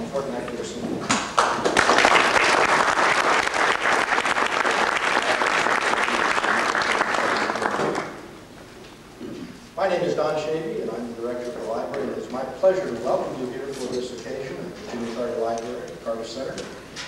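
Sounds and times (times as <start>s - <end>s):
audience applauding: 1.4s - 8.3s.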